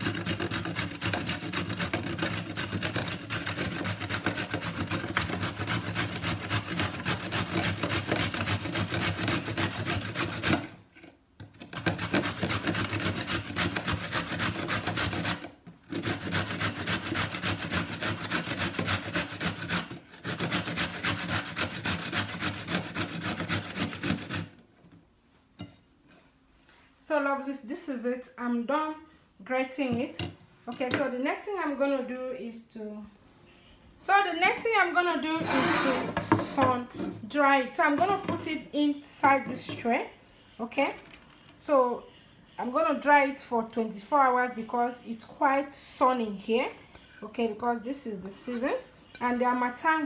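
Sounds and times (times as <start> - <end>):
carrot grating on metal grater: 0.0 - 10.8, 11.5 - 24.6, 35.2 - 37.0, 37.8 - 46.6, 47.4 - 50.0.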